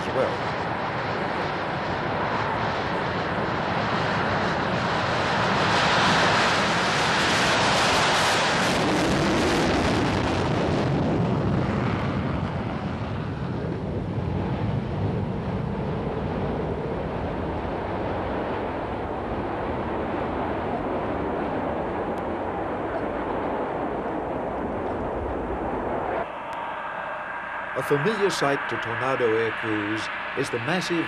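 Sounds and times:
jet engine roar: 0.0s - 31.0s
low jet rumble: 0.0s - 31.0s.

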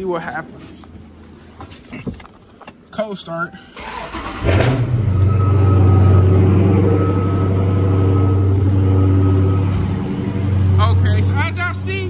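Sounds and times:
car engine starting and idling: 3.7s - 12.0s.

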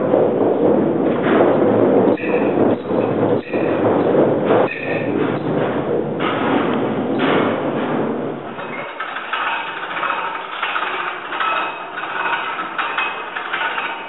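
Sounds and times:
sack truck wheels rumbling: 0.0s - 14.0s
hand winch clattering and squeaking: 8.5s - 14.0s.

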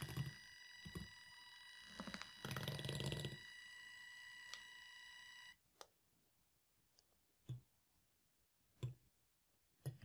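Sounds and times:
mini whisk motor whining: 0.0s - 5.6s.

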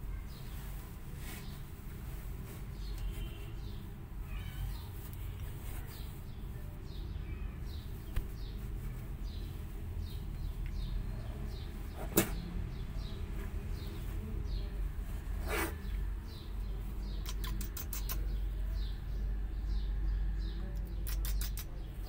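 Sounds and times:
small bird chirping: 2.7s - 14.7s, 15.4s - 22.0s
kitten spitting: 17.2s - 18.3s, 20.9s - 21.8s.

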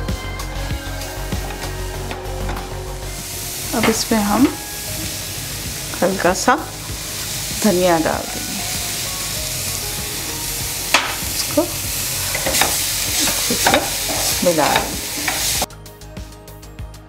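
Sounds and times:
food sizzling: 0.0s - 15.7s
spatula scraping a pan: 10.8s - 15.7s.

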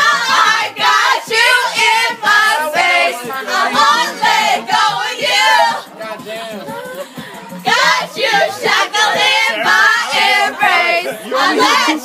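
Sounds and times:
group of voices singing: 0.0s - 12.0s
music: 0.0s - 12.0s.

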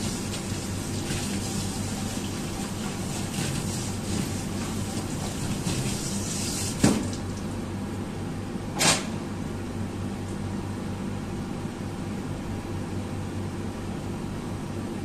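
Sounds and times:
water boiling in pan: 0.0s - 7.6s.

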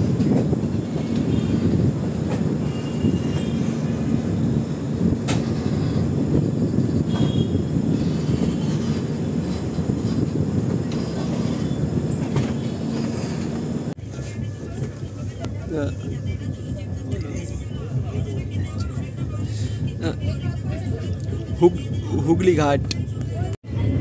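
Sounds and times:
train wheels rumbling on rails: 0.0s - 23.1s
wind: 0.0s - 24.0s.

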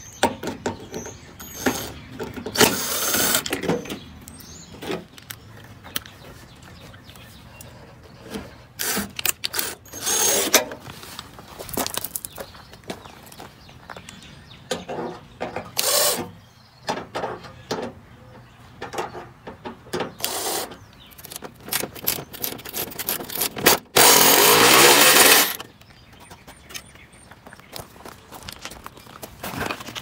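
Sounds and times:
cordless driver whirring: 2.5s - 3.6s, 8.8s - 10.6s, 15.8s - 16.3s, 20.2s - 25.6s
metal parts clicking and knocking: 20.2s - 25.7s.

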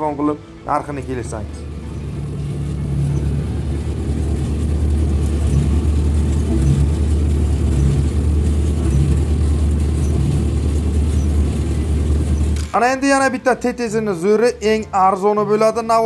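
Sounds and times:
baler machinery pulsing: 0.0s - 14.2s
tractor engine hum: 0.0s - 16.0s.

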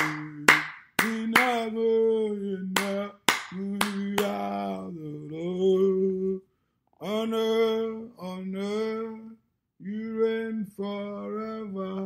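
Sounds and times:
handclaps: 0.0s - 1.7s, 2.8s - 4.4s.

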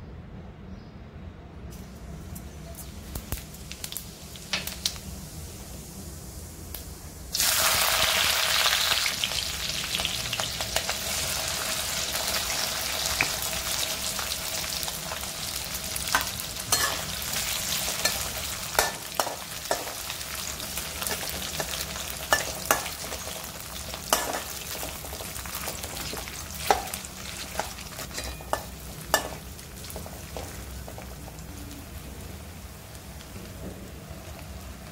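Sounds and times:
potatoes sizzling in hot oil: 2.4s - 34.9s
metal spatula scraping pan: 27.6s - 29.4s.

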